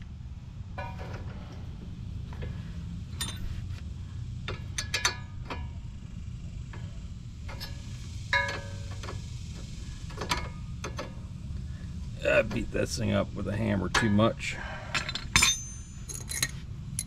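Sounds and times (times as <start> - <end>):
steady low hum: 0.0 - 17.0
wrench clinking on metal: 3.1 - 3.6, 4.5 - 5.7, 14.9 - 17.0.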